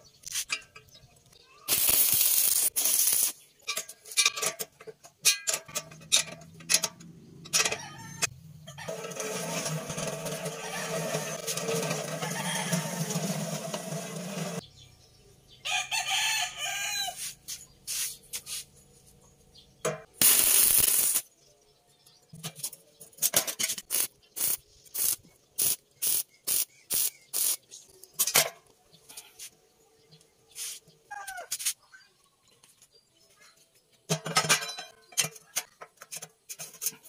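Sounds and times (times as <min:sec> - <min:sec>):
rooster crowing: 0:07.6 - 0:09.1, 0:10.3 - 0:13.7, 0:15.6 - 0:17.2
loud burst of noise: 0:20.2 - 0:21.2.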